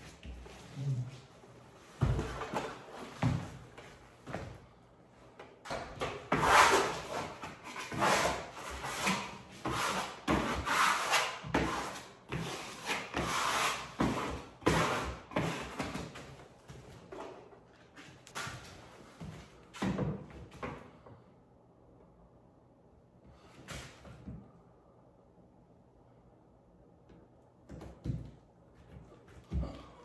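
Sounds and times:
wallpaper rubbed against wall: 0:06.3 - 0:15.8.

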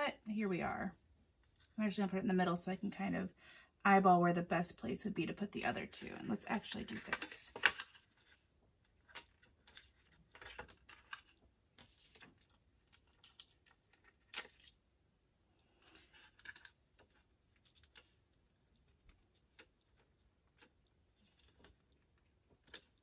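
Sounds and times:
paper and plastic clicks and rustles: 0:05.8 - 0:14.8, 0:15.7 - 0:23.0.

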